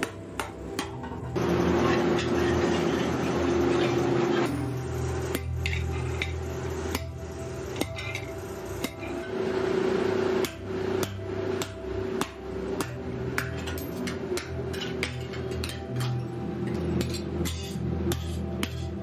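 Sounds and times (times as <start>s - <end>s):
steady hum: 0.0s - 19.0s
hammer striking chisel on steel: 10.4s - 19.0s.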